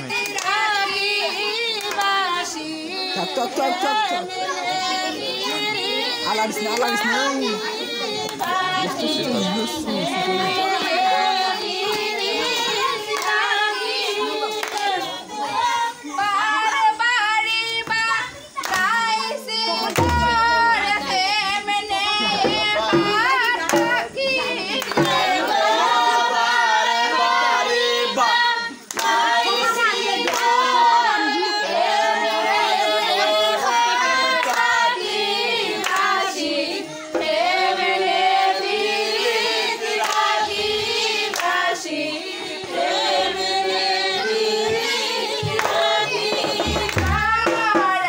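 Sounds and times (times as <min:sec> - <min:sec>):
hand clapping: 0:00.0 - 0:01.1, 0:01.7 - 0:02.2, 0:08.1 - 0:08.7, 0:11.6 - 0:15.1, 0:17.8 - 0:19.1, 0:19.8 - 0:21.2, 0:22.1 - 0:25.6, 0:28.9 - 0:30.7, 0:34.4 - 0:34.8, 0:35.8 - 0:36.2, 0:40.0 - 0:40.3, 0:41.3 - 0:41.6, 0:45.4 - 0:48.0
group singing folk song: 0:00.0 - 0:48.0.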